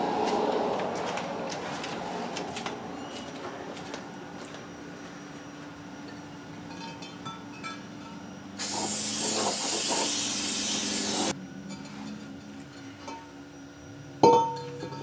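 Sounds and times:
aerosol can spraying hiss: 0:08.6 - 0:11.3.

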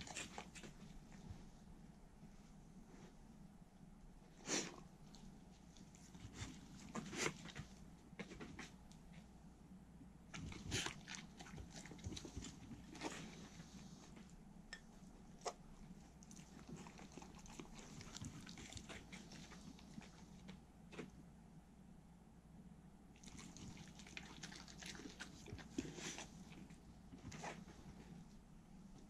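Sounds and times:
dogs chewing and licking: 0:00.0 - 0:01.3, 0:05.1 - 0:08.8, 0:10.3 - 0:14.0, 0:15.4 - 0:21.1, 0:23.2 - 0:28.1.

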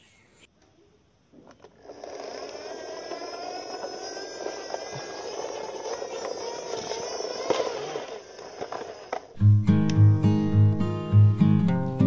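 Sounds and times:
toy truck whirring buzz: 0:01.4 - 0:09.4.

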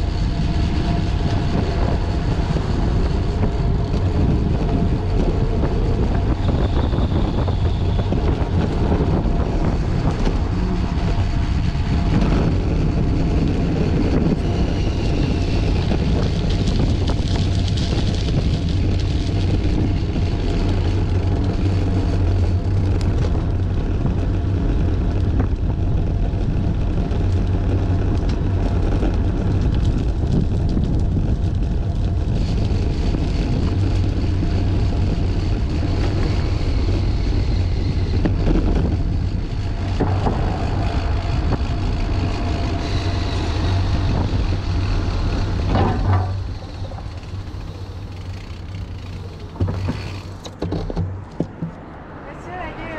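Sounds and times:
tyre noise on pavement: 0:00.0 - 0:52.9
wind buffeting microphone: 0:00.0 - 0:52.9.

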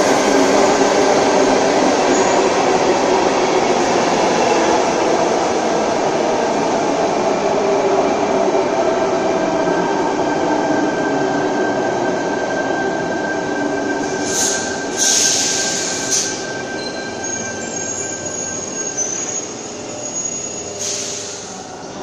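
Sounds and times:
train wheels rumbling on rails: 0:00.0 - 0:22.0
high brake squeal: 0:13.9 - 0:21.6.

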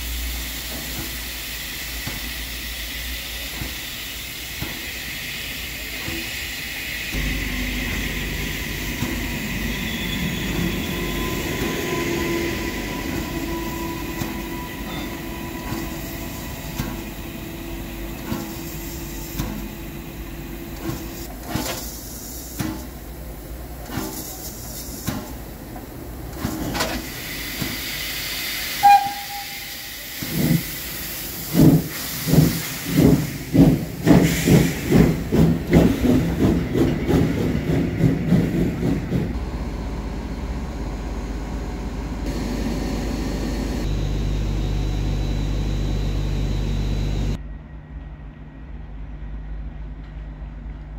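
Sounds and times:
steam hissing: 0:00.0 - 0:39.3
steam whistle blast: 0:28.7 - 0:30.1.

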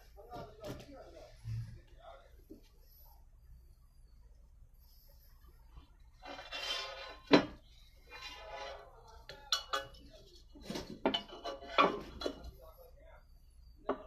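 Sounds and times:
hard objects clinking and knocking: 0:08.6 - 0:12.5.

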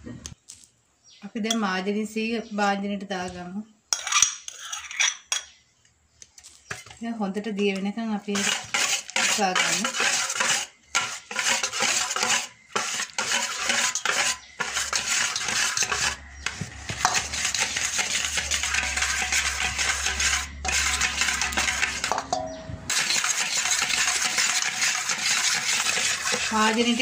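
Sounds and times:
whisk scraping metal bowl: 0:08.3 - 0:27.0.

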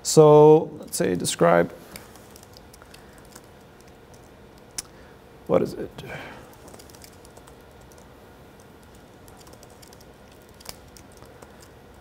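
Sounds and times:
typing on computer keyboard: 0:02.0 - 0:04.3, 0:06.5 - 0:08.1, 0:08.7 - 0:12.0.

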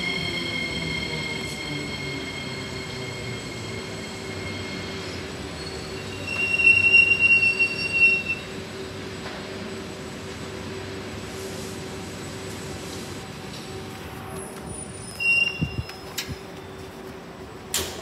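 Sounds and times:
train wheel squeal: 0:00.0 - 0:08.9, 0:14.4 - 0:16.5
electric train whine: 0:00.0 - 0:18.0.

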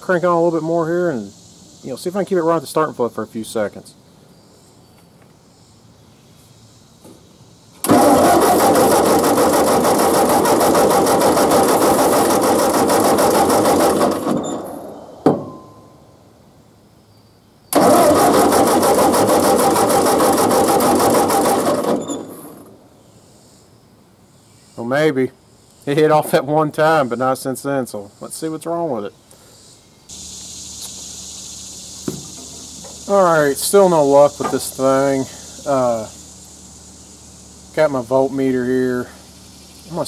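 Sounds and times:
tractor engine cranking: 0:07.8 - 0:15.0, 0:17.7 - 0:22.7, 0:30.1 - 0:40.0.

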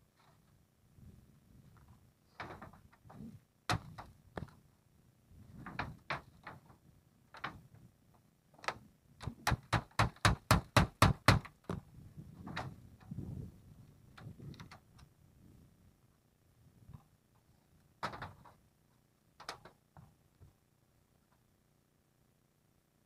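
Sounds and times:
hammer striking nail: 0:09.2 - 0:11.5.

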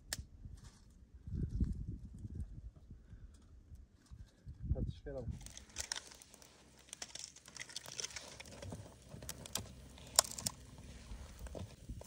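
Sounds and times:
crinkling and rustling: 0:05.4 - 0:12.0.

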